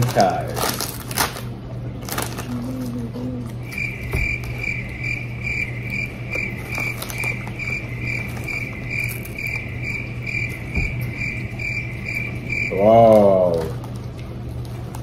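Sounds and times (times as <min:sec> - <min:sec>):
low steady hum: 0:00.0 - 0:15.0
cricket chirping: 0:03.6 - 0:13.0.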